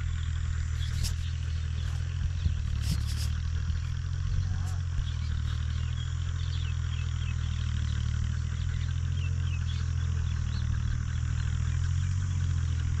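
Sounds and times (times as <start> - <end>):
low rumble: 0.0 - 7.4.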